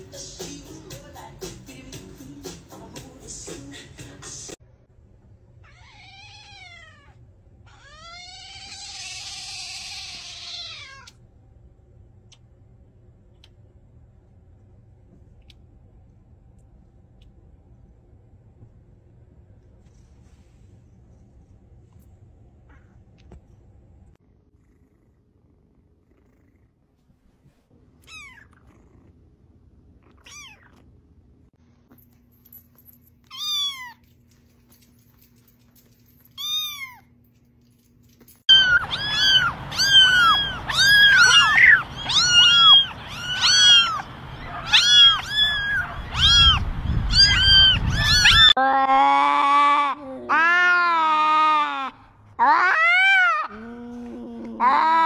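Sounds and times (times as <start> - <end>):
cat meowing: 5.6 - 11.2, 28.0 - 28.7, 30.1 - 30.8, 38.5 - 48.6
kitten purring: 24.2 - 27.4, 28.1 - 29.4.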